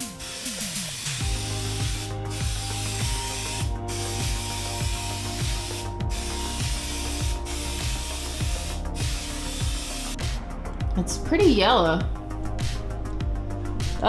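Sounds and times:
spray can hissing: 0.0s - 10.4s
background music with beat: 0.0s - 14.0s.

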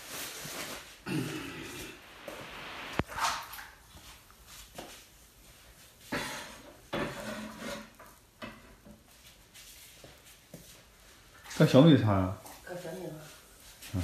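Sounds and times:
kitchenware knocks and scrapes: 6.9s - 9.0s.

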